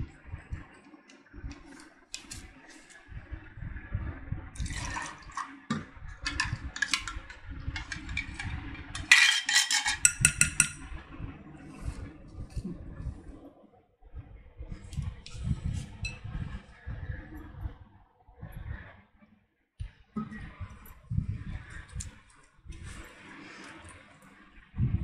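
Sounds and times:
water pouring into bowl: 4.5s - 9.2s
low rumble of handling: 5.7s - 19.0s, 19.8s - 25.0s.

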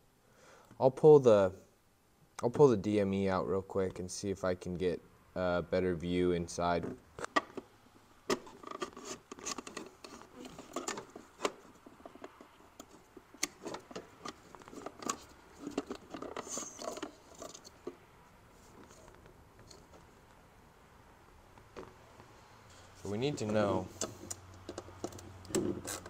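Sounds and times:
plastic clicks and rattles: 8.3s - 18.0s, 24.0s - 26.0s
rubbing against plastic housing: 8.3s - 18.0s.

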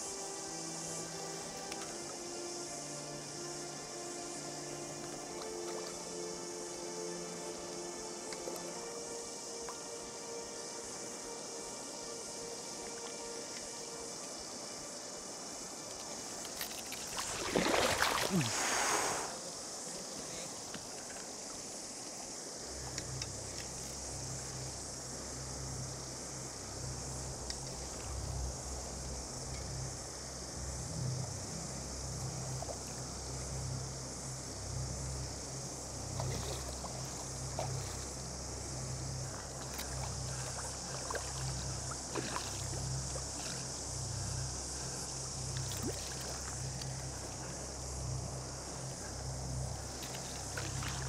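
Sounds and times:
cicada chorus: 0.0s - 51.0s
shallow water running: 0.1s - 51.0s
faint clicks: 22.8s - 23.9s.

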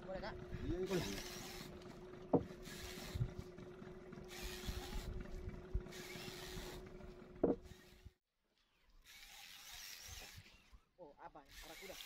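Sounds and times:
boat engine humming: 0.0s - 8.2s
short knocks: 2.3s - 2.6s, 7.4s - 7.7s.

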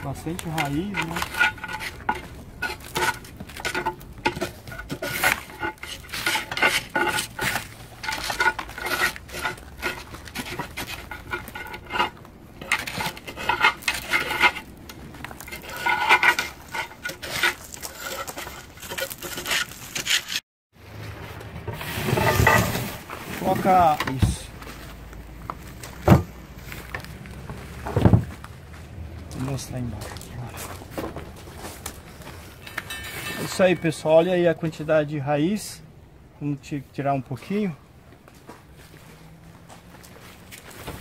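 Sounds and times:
metal tool scraping a ceramic pot: 0.0s - 14.7s, 15.4s - 20.4s, 32.6s - 34.1s.

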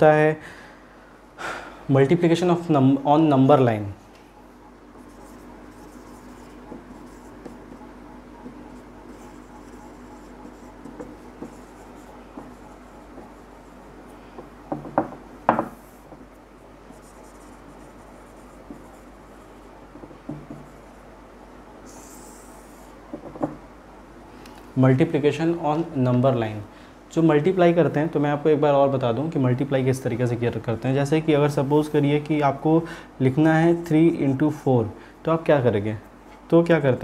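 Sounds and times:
marker rubbing on whiteboard: 5.0s - 13.9s, 16.8s - 19.7s, 21.9s - 23.0s
sharp knocks: 14.4s - 16.2s.

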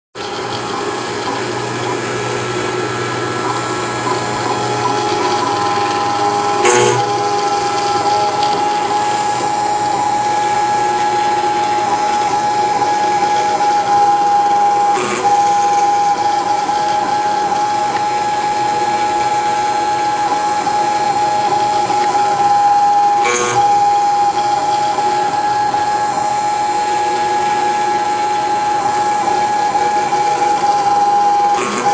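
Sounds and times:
cnc spindle high whine: 0.2s - 31.9s
cutter grinding chatter: 0.2s - 31.9s.

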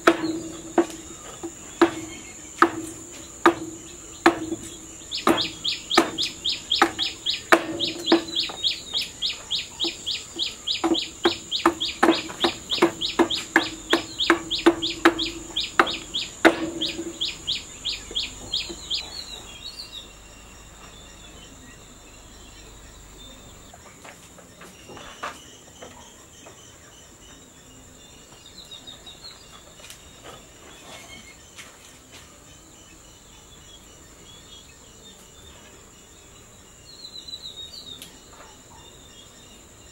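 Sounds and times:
bird chirping: 0.0s - 39.9s
high insect drone: 0.0s - 39.9s
hammer striking chisel: 1.8s - 8.7s, 10.8s - 17.4s.

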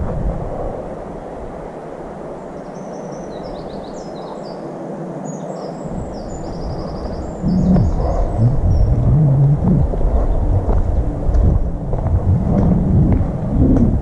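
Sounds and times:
steady rushing noise: 0.0s - 14.0s
songbird chirping: 2.4s - 11.8s.

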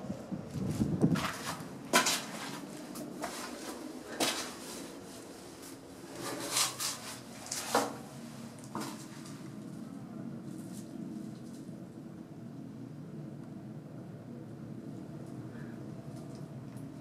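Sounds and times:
footsteps on concrete steps: 0.4s - 4.9s.

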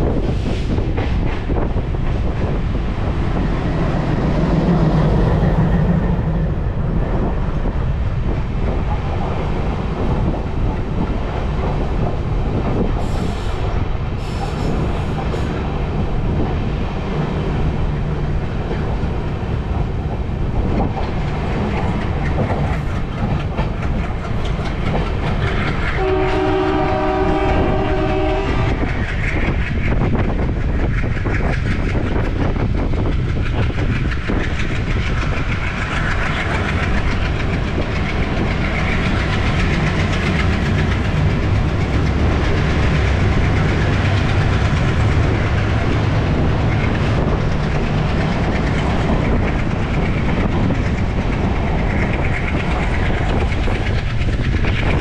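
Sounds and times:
train rumble and wheel clatter: 0.0s - 55.0s
train horn: 25.9s - 28.9s.

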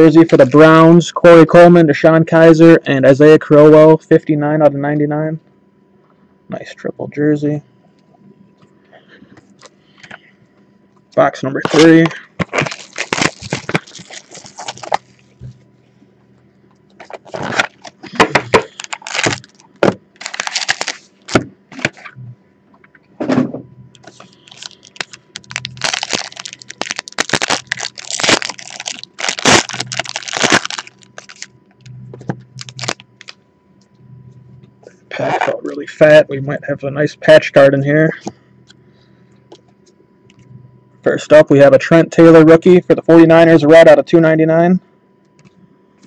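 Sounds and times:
plastic wrap crinkling: 0.0s - 0.8s, 11.6s - 15.3s, 17.0s - 22.1s, 24.0s - 31.5s, 32.6s - 33.4s.

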